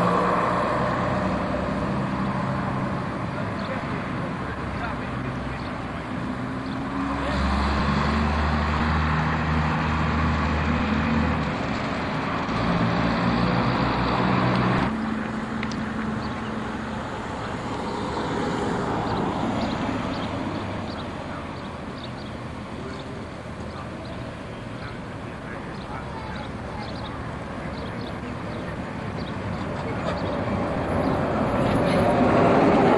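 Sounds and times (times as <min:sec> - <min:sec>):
bus diesel engine running: 0:00.0 - 0:32.9
quiet street traffic: 0:00.0 - 0:32.9.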